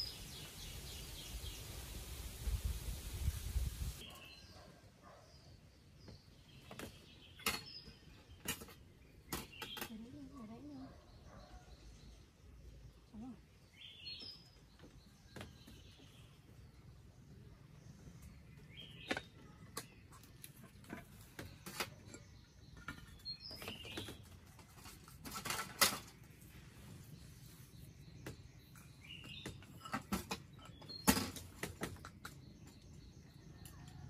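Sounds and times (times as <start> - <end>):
clatter of dishes: 29.4 - 32.0.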